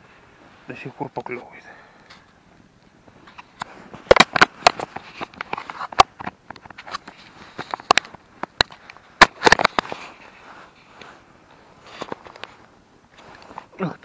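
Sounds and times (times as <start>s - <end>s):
sharp clicks and cracks: 2.0s - 10.0s.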